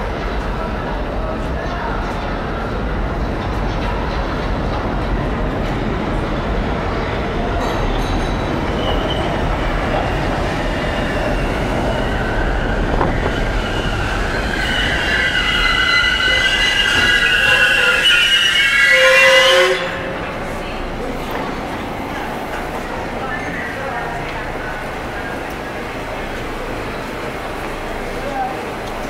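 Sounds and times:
train wheels rumbling on rails: 0:00.0 - 0:29.0
high multi-tone wheel squeal: 0:08.0 - 0:20.3.

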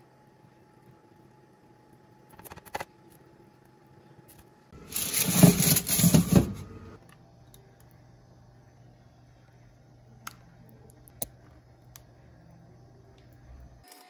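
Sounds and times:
metal tray scraping on oven rack: 0:04.8 - 0:06.8.

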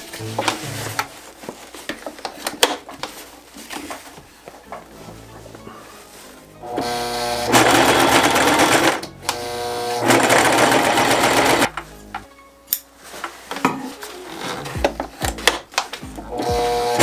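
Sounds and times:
sewing machine stitching: 0:06.7 - 0:11.7.

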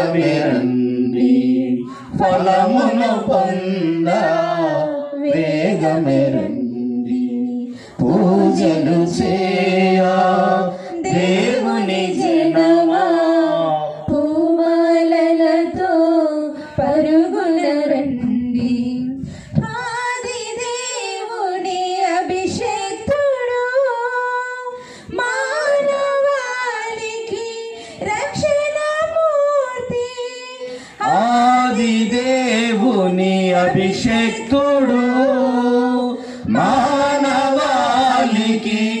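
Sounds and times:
woman singing a hymn: 0:10.8 - 0:31.6.

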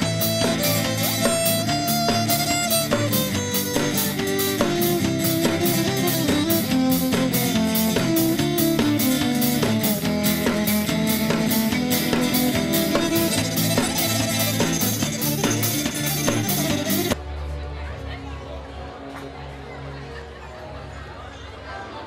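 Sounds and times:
acoustic guitar: 0:00.0 - 0:17.2
steady percussive beat: 0:00.0 - 0:17.2
fiddle: 0:00.0 - 0:22.0.

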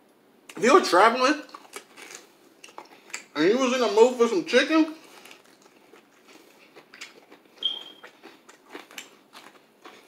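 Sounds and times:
crunchy chewing of fried chicken: 0:01.4 - 0:03.4, 0:04.9 - 0:10.0
short high-pitched squeak: 0:07.6 - 0:08.0.

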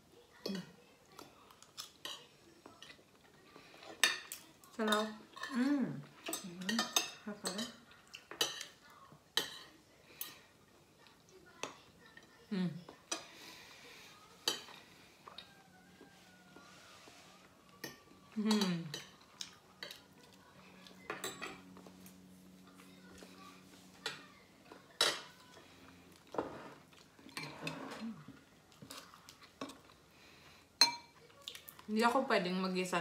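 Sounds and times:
cutlery clinking on plates: 0:03.8 - 0:10.5, 0:14.4 - 0:15.5, 0:20.9 - 0:22.0, 0:23.9 - 0:25.6, 0:26.2 - 0:28.2, 0:30.8 - 0:31.2.

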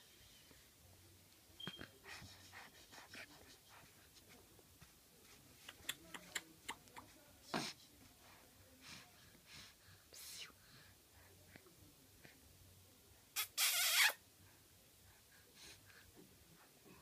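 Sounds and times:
small mouth clicks: 0:05.6 - 0:07.0.

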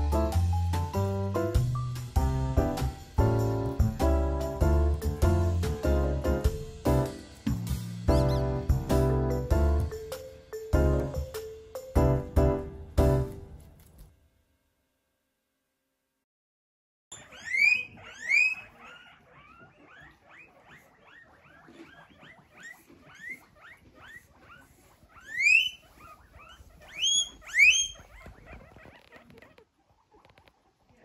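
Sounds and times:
guinea pigs wheeking: 0:08.1 - 0:09.1, 0:17.1 - 0:31.0.

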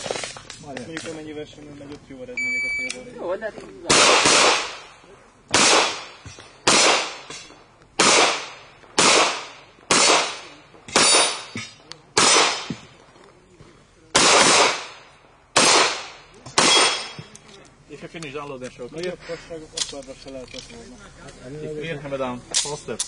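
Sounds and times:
pistol shots echoing: 0:03.9 - 0:04.9, 0:05.5 - 0:12.8, 0:14.1 - 0:17.3.

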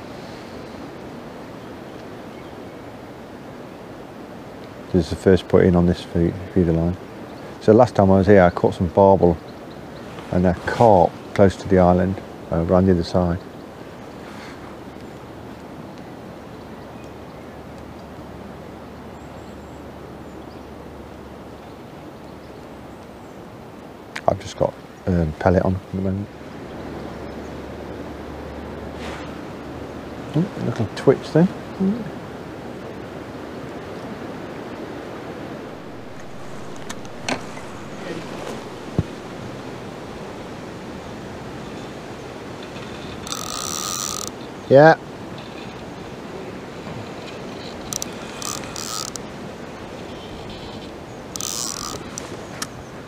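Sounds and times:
rippling pond water: 0:00.0 - 0:53.0
faint bird chirps: 0:19.0 - 0:20.7
wind on microphone: 0:25.8 - 0:53.0
fishing reel clicks: 0:43.2 - 0:44.3, 0:47.9 - 0:49.2, 0:51.4 - 0:52.2.

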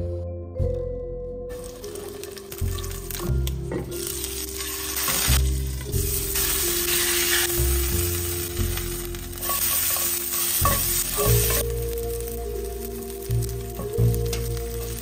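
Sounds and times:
background music: 0:00.0 - 0:15.0
oil sizzling in a frying pan: 0:01.5 - 0:15.0
spatula stirring vegetables: 0:04.0 - 0:15.0.

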